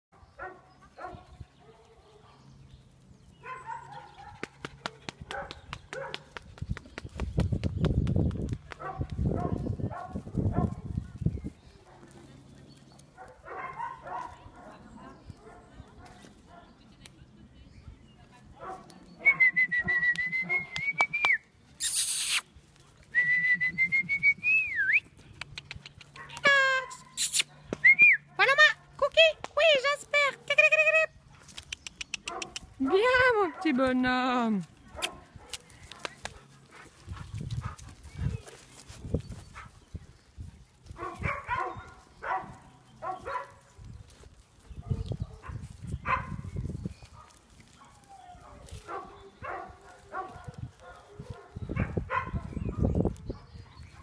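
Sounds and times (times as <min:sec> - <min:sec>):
dogs barking and yipping: 0:00.2 - 0:02.5, 0:03.4 - 0:06.4, 0:08.7 - 0:11.2, 0:13.0 - 0:16.7, 0:32.1 - 0:33.8, 0:34.8 - 0:40.0, 0:40.8 - 0:43.9, 0:44.5 - 0:54.0
person whistling: 0:23.2 - 0:25.1
sharp clicks: 0:31.5 - 0:32.7.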